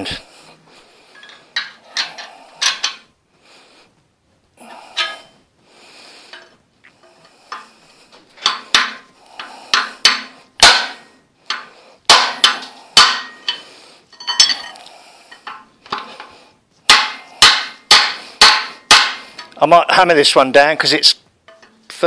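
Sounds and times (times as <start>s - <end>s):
hammer striking steel bar: 9.7s - 13.6s, 16.9s - 19.3s.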